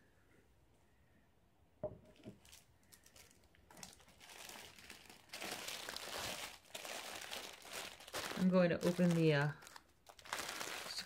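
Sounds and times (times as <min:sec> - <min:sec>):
plastic bag crinkling: 0:02.1 - 0:11.0.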